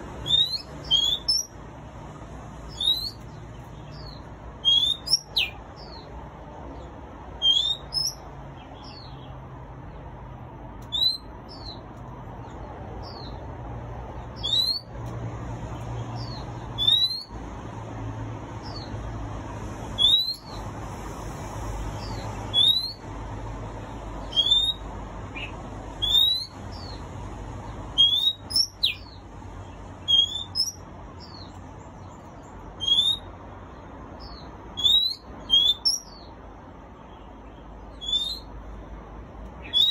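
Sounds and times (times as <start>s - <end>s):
bird singing whistled notes: 0.2s - 1.6s, 2.7s - 6.0s, 7.4s - 8.2s, 10.9s - 11.8s, 14.4s - 14.9s, 16.1s - 17.4s, 20.0s - 20.6s, 22.0s - 23.0s, 24.2s - 27.0s, 28.0s - 29.2s, 30.0s - 31.5s, 32.8s - 33.3s, 34.2s - 36.3s, 37.9s - 38.5s, 39.6s - 39.9s.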